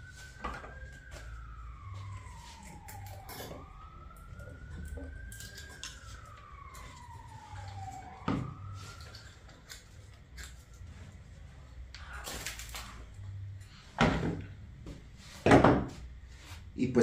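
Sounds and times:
siren wailing: 0.0s - 16.2s.

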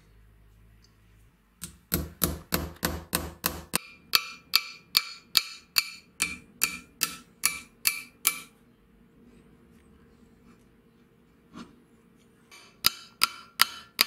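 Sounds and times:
hammer tapping metal rivets: 1.6s - 8.5s, 12.5s - 14.0s.

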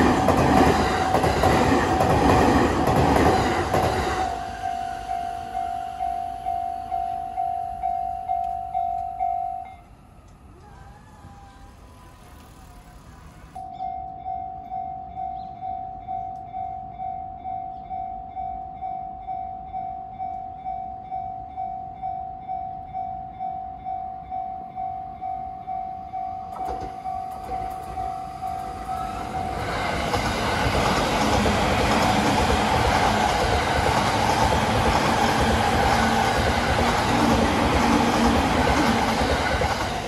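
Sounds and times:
level crossing warning bell: 0.0s - 10.3s, 13.6s - 40.0s
electric train passing: 0.0s - 40.0s.

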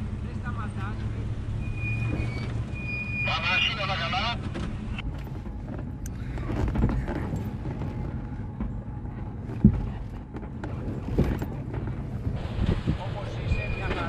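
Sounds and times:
off-road engine running low: 0.0s - 14.0s
knocks and clunks: 4.3s - 14.0s.

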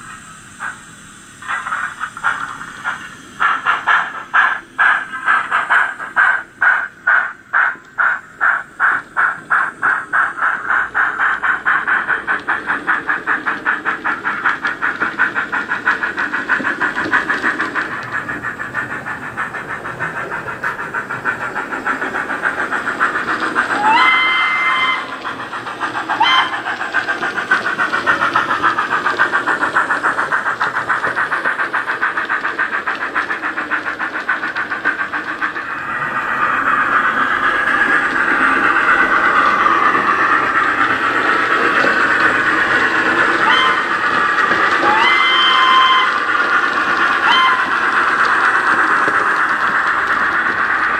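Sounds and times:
steam locomotive exhaust beat: 0.0s - 50.9s
locomotive whistle: 23.7s - 25.4s, 26.1s - 26.8s, 43.3s - 46.4s, 47.1s - 48.0s.

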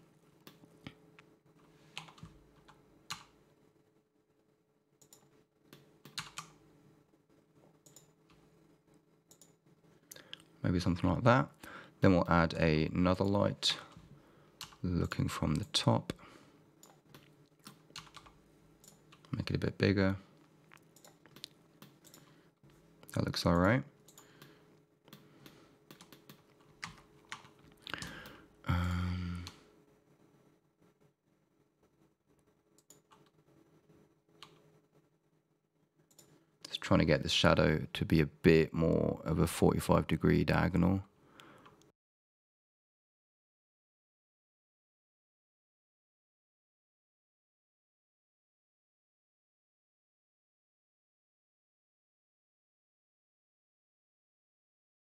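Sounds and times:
low room hum: 0.0s - 41.9s
keyboard and mouse clicks: 5.0s - 6.6s, 7.8s - 8.4s, 9.3s - 10.5s, 16.8s - 19.3s, 20.7s - 22.3s, 25.1s - 28.3s, 32.8s - 33.4s, 34.4s - 34.6s.

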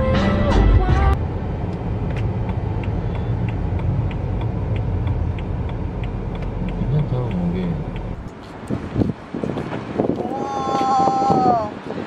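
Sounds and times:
car rumbling as it drives: 0.0s - 12.0s
light even ticking: 1.7s - 9.2s.

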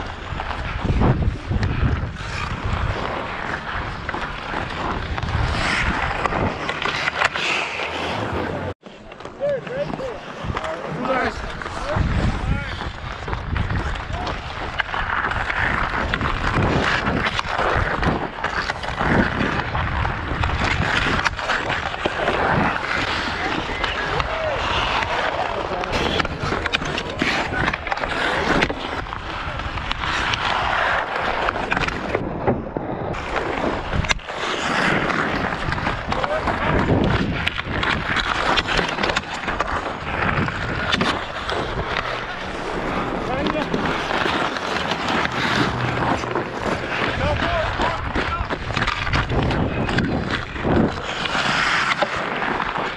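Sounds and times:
wind rumbling on microphone: 0.0s - 7.2s, 11.4s - 51.8s
ice skate blades scraping: 0.0s - 52.9s
hockey stick clicking on puck: 13.1s - 32.6s, 33.2s - 52.9s.

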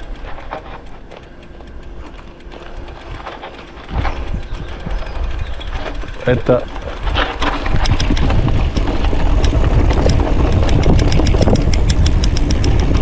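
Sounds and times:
bicycle ticks and rattles: 0.0s - 13.0s
wind rumbling on microphone: 2.7s - 13.0s.

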